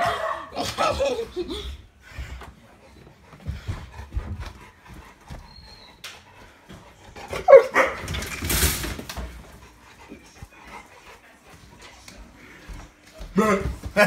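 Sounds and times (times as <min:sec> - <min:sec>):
dog barking: 0:00.0 - 0:01.0, 0:07.3 - 0:08.1.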